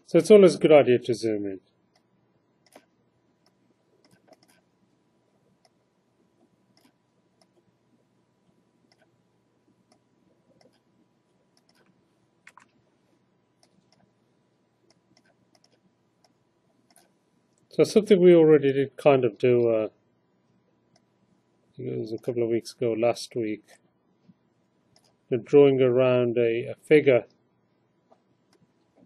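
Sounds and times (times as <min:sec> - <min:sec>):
computer mouse clicks: 0:01.9 - 0:04.7, 0:06.4 - 0:07.6, 0:08.9 - 0:09.1, 0:09.9 - 0:10.9, 0:11.6 - 0:12.8, 0:13.6 - 0:14.1, 0:14.9 - 0:17.7, 0:24.9 - 0:25.2.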